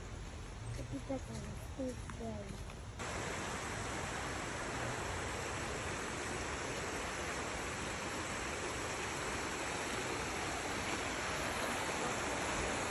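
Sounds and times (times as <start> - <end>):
creek rushing over rocks: 3.0 - 12.9.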